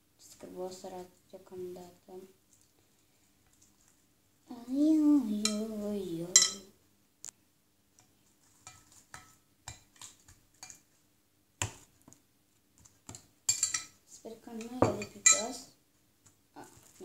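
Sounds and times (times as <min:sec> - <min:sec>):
utensil tapping glass bowl: 0:06.4 - 0:06.6, 0:08.7 - 0:10.8, 0:14.6 - 0:15.5.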